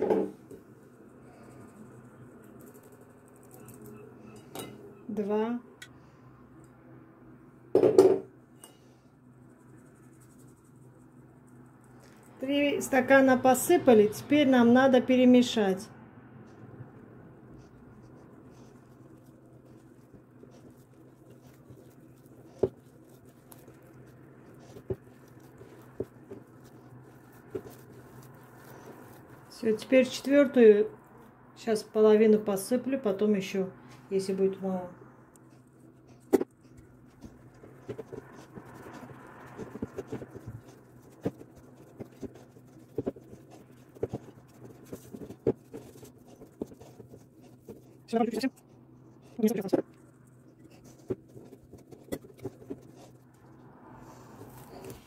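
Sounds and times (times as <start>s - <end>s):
low steady hum: 0.0s - 55.0s
hand squelching dough: 16.5s - 31.4s, 33.9s - 55.0s.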